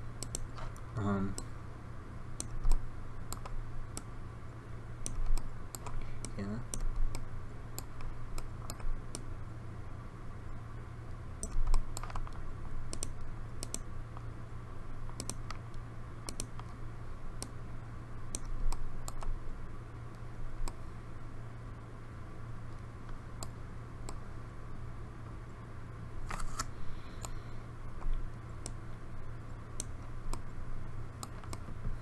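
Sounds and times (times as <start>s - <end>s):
steady low hum: 0.0s - 32.0s
mouse and keyboard clicks: 0.2s - 0.8s, 11.4s - 13.9s, 15.1s - 15.6s, 16.3s - 16.8s, 18.3s - 19.3s, 31.2s - 31.7s.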